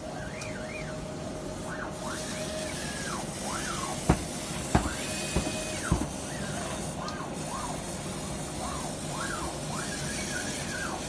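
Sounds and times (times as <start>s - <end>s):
gantry motors whining: 0.0s - 11.0s
sharp knocks: 4.0s - 6.2s.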